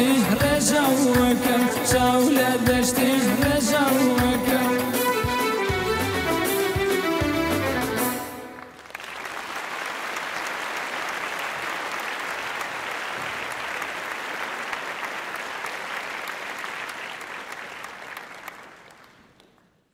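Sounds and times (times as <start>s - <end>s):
audience applauding: 4.9s - 19.9s.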